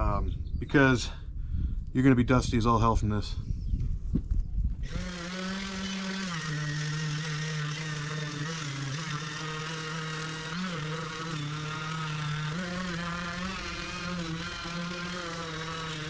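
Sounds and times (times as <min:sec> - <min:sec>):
orbital sander running: 0:04.8 - 0:16.0.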